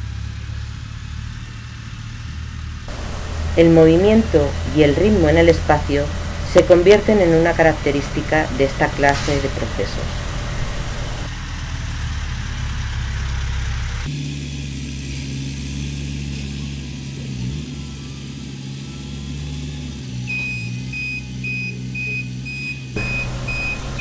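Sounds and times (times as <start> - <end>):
engine running: 0.0 - 22.0, 22.9 - 24.0
warning beeper short beeps: 2.9 - 11.3, 23.0 - 24.0.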